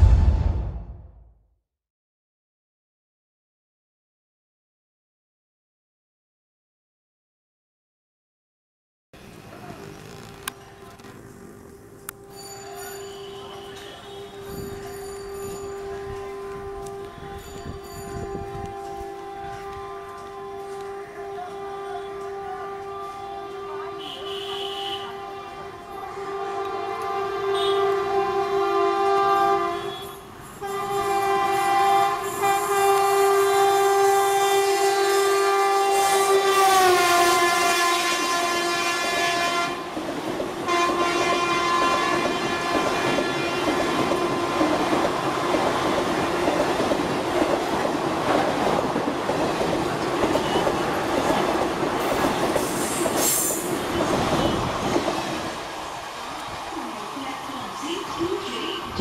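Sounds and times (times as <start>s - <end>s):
locomotive horn honking: 12.0s - 39.9s, 40.7s - 44.6s
train coaches clattering on rails: 12.1s - 23.6s, 28.9s - 33.3s, 38.8s - 59.0s.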